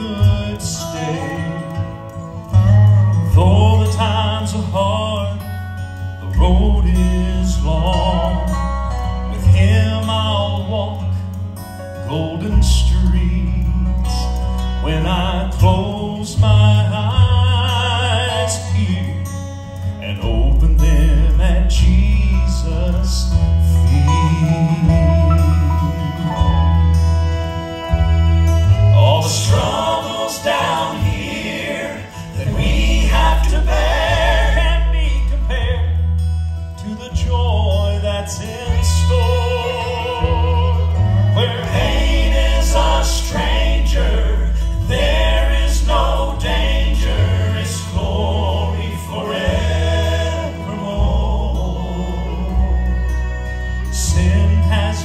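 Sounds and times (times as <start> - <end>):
instrumental accompaniment: 0.0 - 55.0
strong bass line: 20.3 - 31.5, 32.1 - 55.0
vocal trio singing in harmony: 28.8 - 36.2, 36.8 - 55.0.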